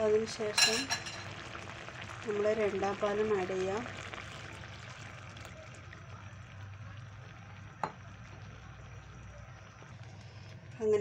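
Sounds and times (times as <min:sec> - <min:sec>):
curry sizzling in a frying pan: 0:00.0 - 0:11.0
liquid pouring: 0:00.9 - 0:10.8.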